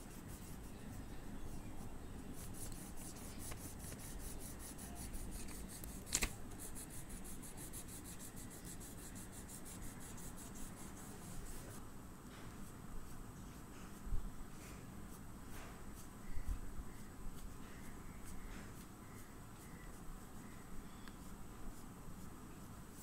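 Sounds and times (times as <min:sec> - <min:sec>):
oil pastel scraping on paper: 0:02.4 - 0:11.8.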